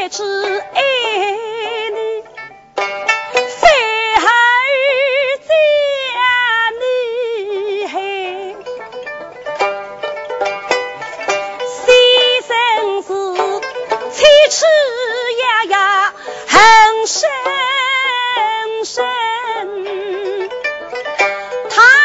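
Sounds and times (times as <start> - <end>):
woman singing: 0.0 - 2.3, 3.4 - 8.7, 11.7 - 20.6, 21.6 - 22.0
plucked pipa: 0.0 - 22.0.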